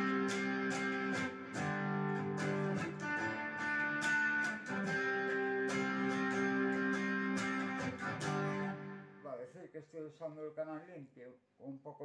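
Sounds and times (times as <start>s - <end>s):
electric guitar strumming chords: 0.0s - 9.3s.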